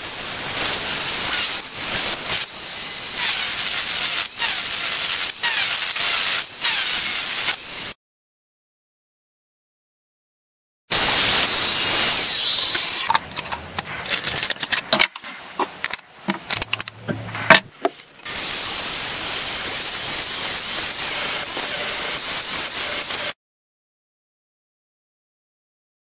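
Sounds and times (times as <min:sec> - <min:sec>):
grinder cutting steel rod: 0:03.2 - 0:07.6
clicks and knocks of handling: 0:13.1 - 0:18.2.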